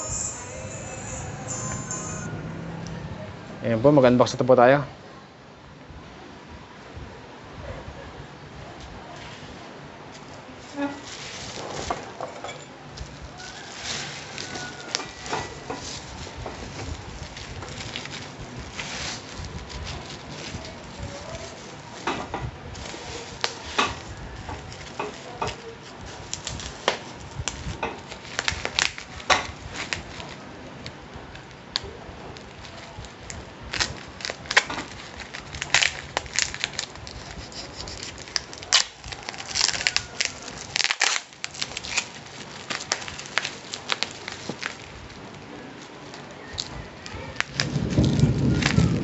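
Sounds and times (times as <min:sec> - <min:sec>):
bubble wrap crackling: 0:00.0 - 0:01.7, 0:10.1 - 0:12.1, 0:13.0 - 0:49.0
knife cutting parcel: 0:33.8 - 0:44.8.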